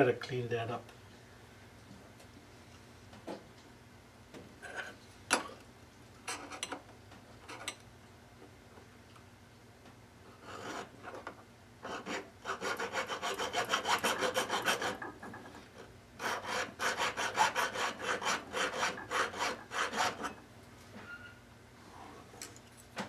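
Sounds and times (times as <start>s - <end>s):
hand file scraping metal: 10.4s - 10.9s, 11.8s - 15.5s, 16.2s - 20.4s.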